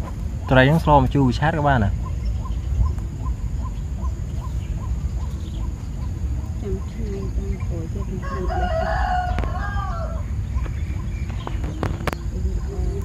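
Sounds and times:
rooster crowing: 0:08.1 - 0:10.4.

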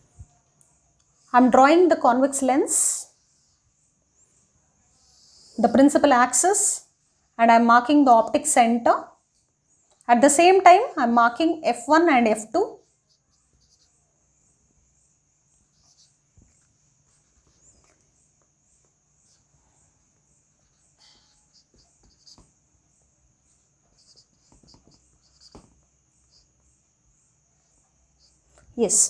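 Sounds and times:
marker on whiteboard: 0:12.0 - 0:14.1, 0:15.7 - 0:18.0, 0:20.6 - 0:26.8.

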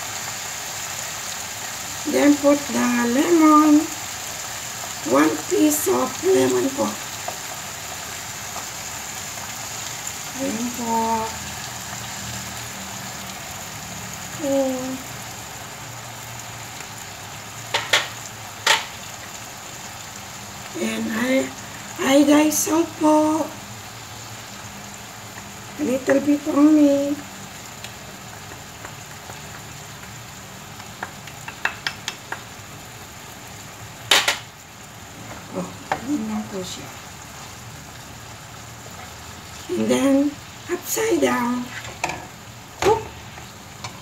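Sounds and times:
fish frying in oil: 0:00.0 - 0:44.0
spatula tapping ceramic dish: 0:31.0 - 0:32.5.

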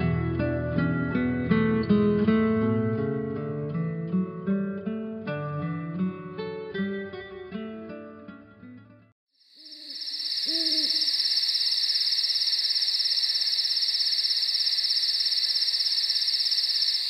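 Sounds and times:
insect trill: 0:09.4 - 0:17.0
owl hooting: 0:09.6 - 0:17.0.

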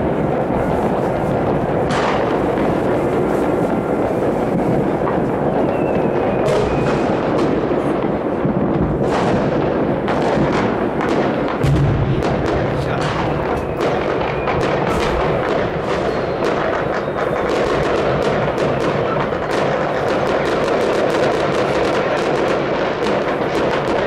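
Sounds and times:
fireworks bangs and crackles: 0:00.0 - 0:24.0
sharp loud firework reports: 0:00.0 - 0:24.0
faint rocket whistles: 0:02.6 - 0:08.0, 0:12.7 - 0:20.0.

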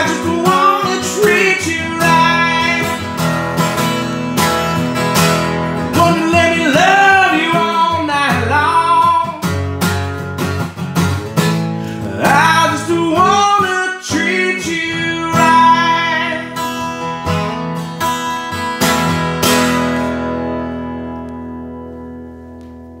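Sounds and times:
man singing: 0:00.0 - 0:03.3, 0:05.8 - 0:09.6, 0:11.9 - 0:17.0
acoustic guitar strumming: 0:00.0 - 0:23.0.

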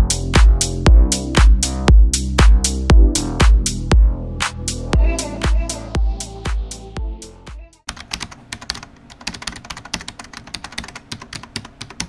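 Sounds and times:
electronic dance music: 0:00.0 - 0:07.8
computer keyboard typing clicks: 0:07.9 - 0:12.0.

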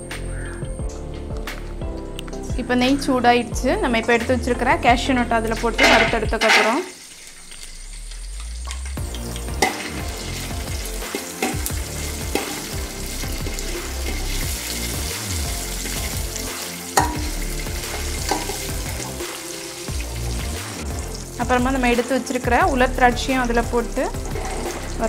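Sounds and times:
nuts sizzling in oil: 0:05.6 - 0:25.0
spoon clicking against pan: 0:17.0 - 0:17.4.

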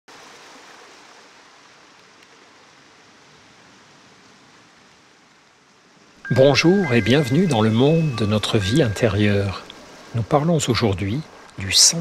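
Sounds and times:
faint steady hiss: 0:00.1 - 0:12.0.

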